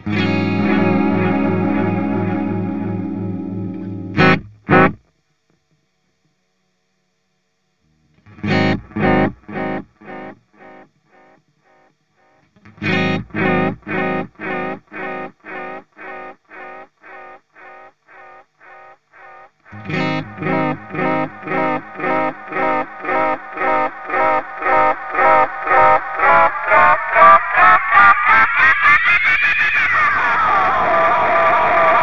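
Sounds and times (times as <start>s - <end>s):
electric guitar notes with echoes: 0.0s - 5.0s, 8.3s - 11.3s, 12.7s - 27.3s.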